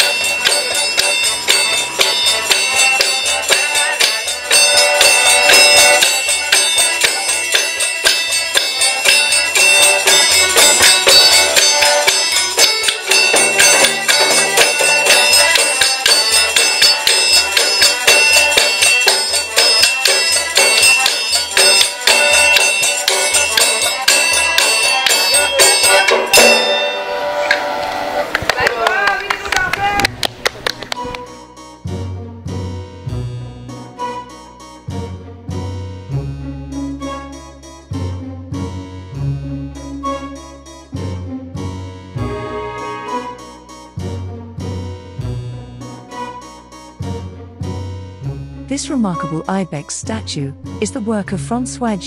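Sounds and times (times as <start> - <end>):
accordion: 0.0 - 29.4, 30.6 - 52.0
hand percussion: 0.0 - 31.5.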